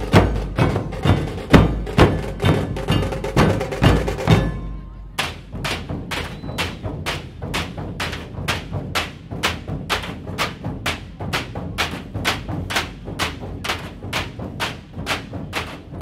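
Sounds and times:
barrel drums struck with sticks: 0.0 - 16.0.

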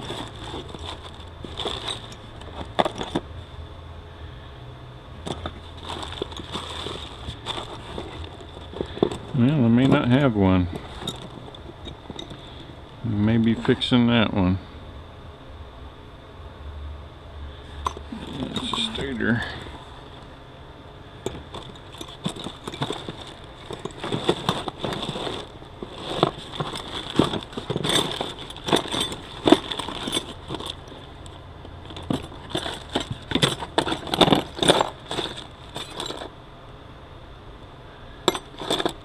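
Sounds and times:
metal parts clinking and rattling: 0.0 - 3.3, 5.2 - 14.0, 17.7 - 20.3, 21.2 - 36.4, 38.2 - 39.0.

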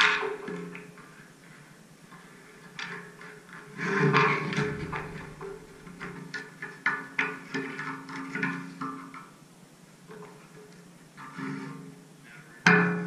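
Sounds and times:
sharp percussive knocks: 4.5 - 6.4.

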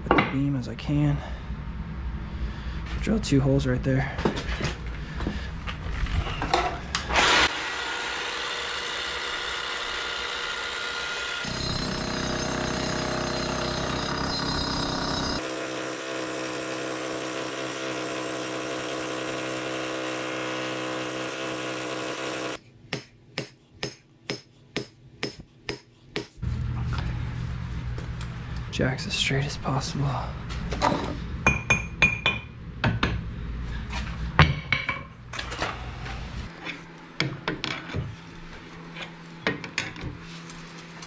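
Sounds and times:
rotary hammer drilling concrete: 7.1 - 22.6
hand hammer blows: 15.4 - 26.4.

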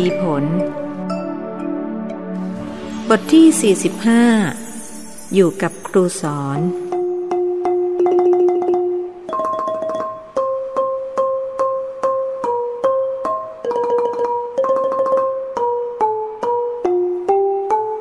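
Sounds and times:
struck notes playing simple tune: 0.0 - 18.0.

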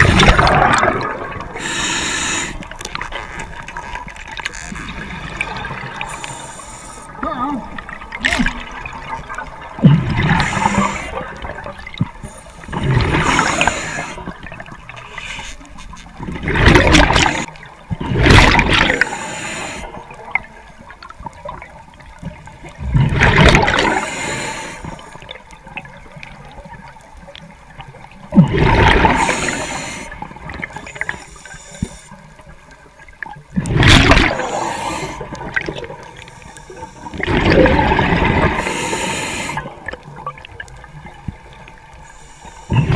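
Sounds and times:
exhaled bubbles gurgling: 0.0 - 15.4, 16.0 - 42.9
diver breathing through regulator: 1.6 - 2.8, 6.0 - 7.2, 10.2 - 11.4, 12.2 - 14.4, 18.9 - 20.0, 23.7 - 25.2, 29.0 - 32.2, 34.3 - 35.5, 38.5 - 39.8, 42.0 - 42.9.

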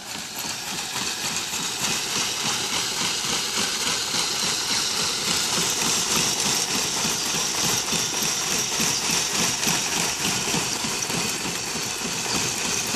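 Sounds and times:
motor-driven sieve rattling: 0.0 - 12.9.

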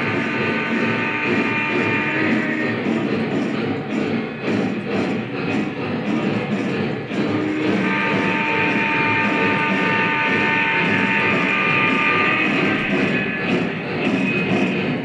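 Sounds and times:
multi-chime steam whistle: 0.0 - 2.8, 7.2 - 13.7
model train rumbling on track: 0.0 - 15.0.

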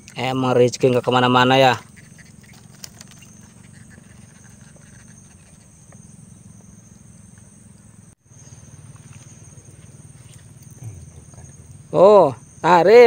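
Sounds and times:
high insect drone: 0.0 - 13.0.

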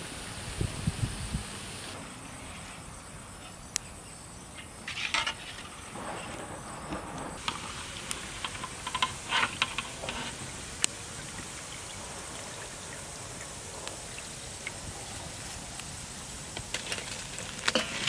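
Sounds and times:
steel skimmer scraping pan: 4.9 - 11.6, 16.5 - 18.0
bread sizzling in hot oil: 7.4 - 18.0.

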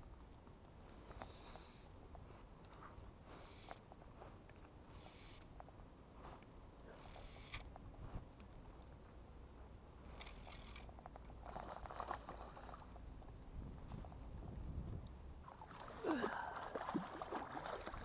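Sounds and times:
fish splashing in water: 11.4 - 12.9, 15.4 - 18.0.

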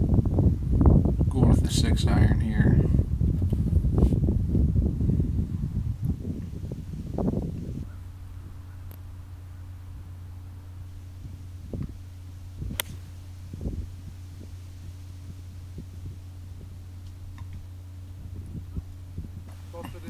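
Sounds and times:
dull low thumps: 0.0 - 20.0
steady low hum: 0.0 - 20.0
golf club striking ball: 10.8 - 17.8.

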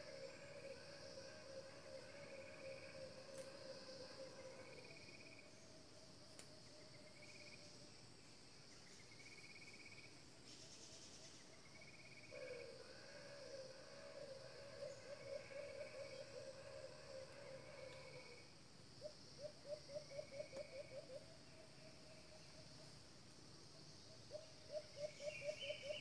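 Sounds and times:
pulsed insect trills: 0.0 - 5.7
insects buzzing: 0.0 - 26.0.

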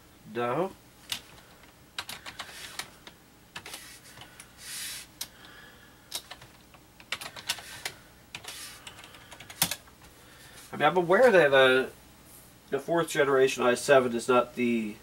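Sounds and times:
keyboard keys clicking: 2.0 - 2.9, 6.1 - 7.7
soft rush of noise: 7.4 - 15.0.

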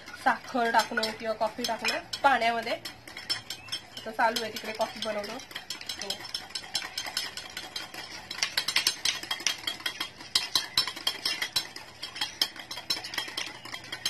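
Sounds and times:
whisk beating in metal bowl: 0.0 - 14.0.

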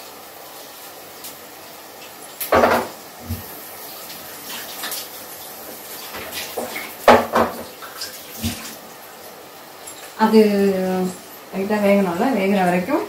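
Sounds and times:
tap water running into sink: 2.4 - 8.8.

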